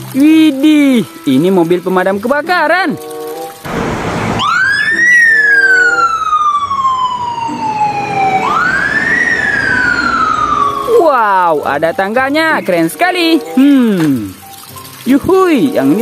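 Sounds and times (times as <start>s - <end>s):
fire engine siren wailing: 3.7s - 11.7s.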